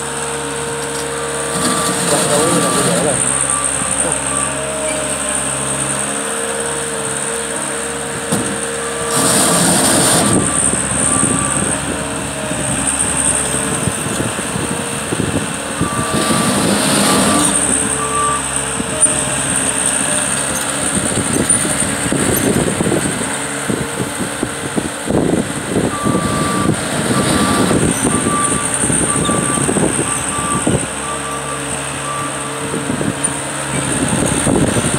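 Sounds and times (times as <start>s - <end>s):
diesel engine whine: 0.0s - 34.9s
track loader rattle: 0.0s - 34.9s.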